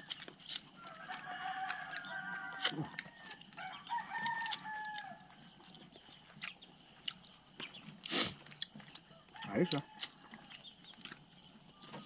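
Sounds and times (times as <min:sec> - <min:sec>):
rooster crowing: 0:00.8 - 0:05.3, 0:09.1 - 0:10.6.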